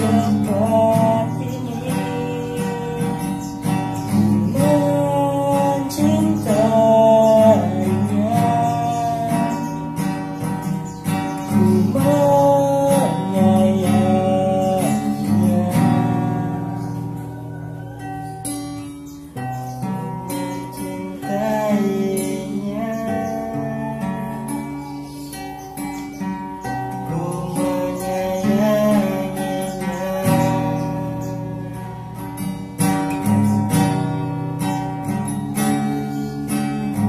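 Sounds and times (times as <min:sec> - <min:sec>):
men singing: 0:00.0 - 0:03.6, 0:04.2 - 0:09.9, 0:11.5 - 0:17.2, 0:20.5 - 0:24.9, 0:27.0 - 0:32.0
strummed acoustic guitar: 0:00.0 - 0:37.0.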